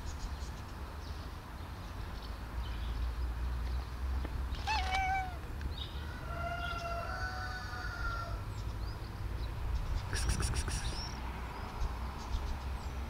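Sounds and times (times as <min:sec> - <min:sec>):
cat meowing: 0:04.6 - 0:05.4.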